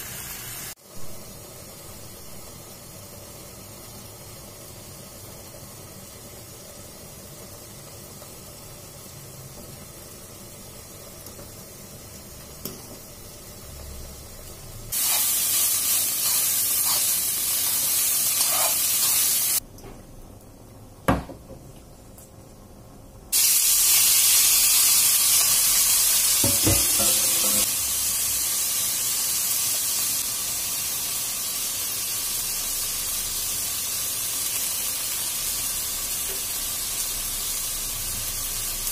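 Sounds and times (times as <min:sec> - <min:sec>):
meat frying sizzle: 0:00.0 - 0:19.6, 0:23.3 - 0:38.9
water boiling hiss: 0:00.0 - 0:19.6, 0:23.3 - 0:38.9
sharp knock on pan: 0:26.4 - 0:27.6.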